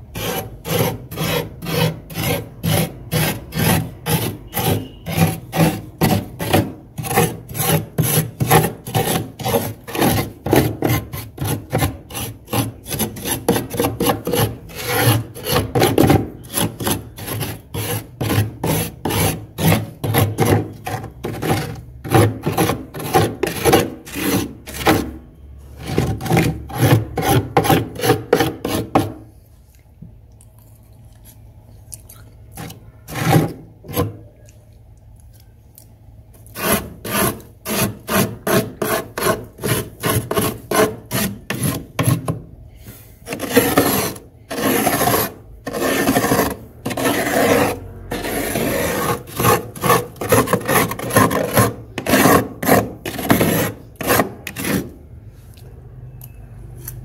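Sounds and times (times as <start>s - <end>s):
spoon scraping frost: 0.0s - 29.4s, 32.1s - 34.6s, 36.3s - 55.0s.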